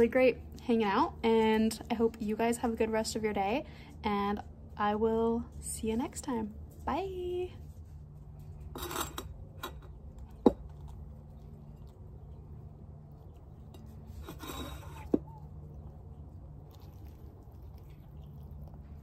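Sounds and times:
steady low hum: 0.0s - 19.0s
tableware rustling: 13.7s - 15.2s.

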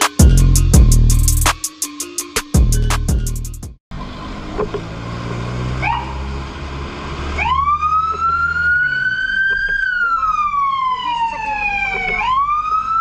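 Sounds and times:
truck engine hum: 3.9s - 13.0s
fire truck siren wailing: 5.5s - 13.0s.

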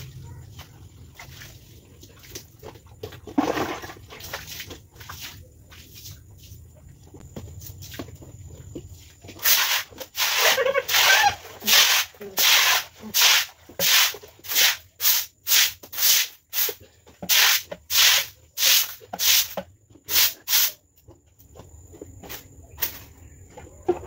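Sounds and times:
stick broom scrubbing wet concrete: 3.4s - 6.6s, 9.3s - 20.8s.

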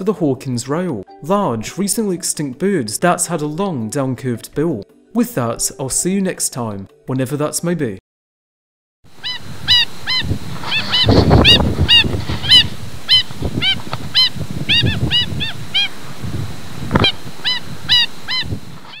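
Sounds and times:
bird yapping calls: 9.2s - 19.0s.

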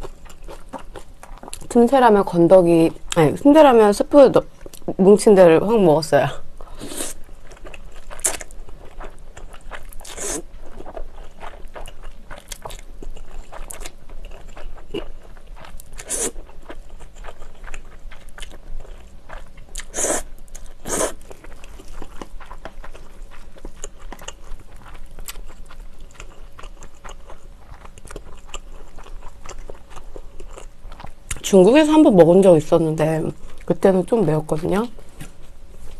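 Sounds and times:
slurping and chewing noodles: 6.7s - 31.4s.

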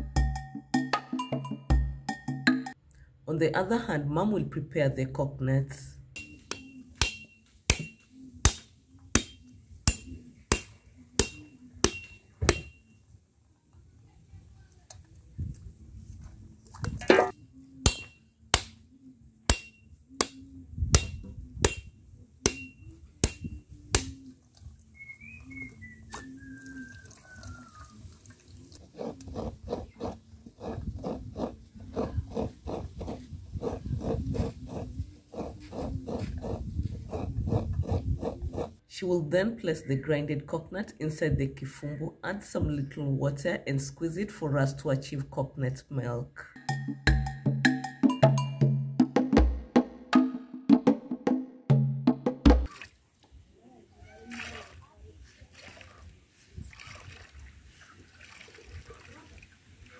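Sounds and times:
machete striking coconut: 6.2s - 12.8s, 17.0s - 18.8s, 19.5s - 24.2s
coconut being grated: 28.7s - 38.8s.

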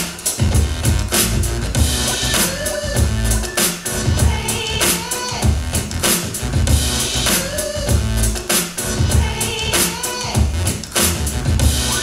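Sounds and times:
drum-heavy music with bass beat: 0.0s - 12.0s.

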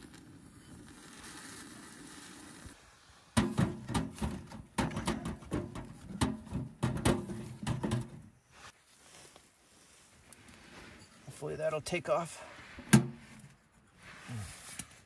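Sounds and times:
match burning with faint hiss: 0.0s - 3.4s
firewood knocking and clattering: 3.4s - 8.3s.

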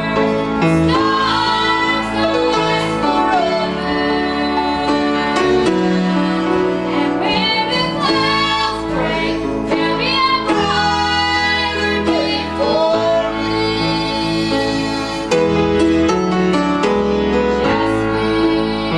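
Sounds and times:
grand piano: 0.0s - 18.9s.

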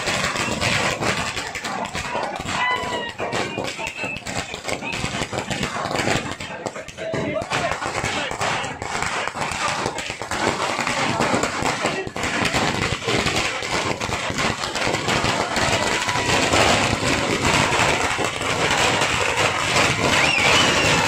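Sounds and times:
crowd noise: 0.0s - 21.0s
firecrackers crackling: 0.0s - 21.0s.

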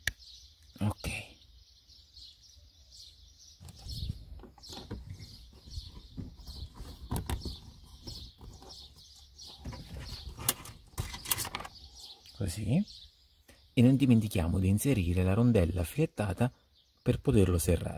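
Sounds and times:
plastic panel knocks and rustles: 3.6s - 8.9s.

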